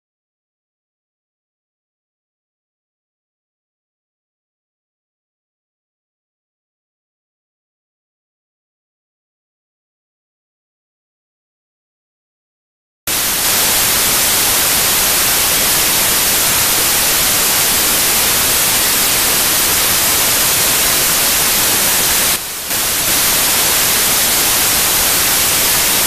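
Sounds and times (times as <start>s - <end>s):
white noise static hiss: 13.1s - 26.0s.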